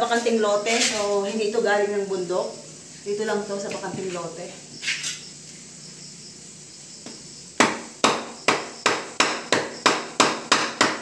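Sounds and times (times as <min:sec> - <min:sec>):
wooden mallet knocking on bananas: 0:07.0 - 0:11.0.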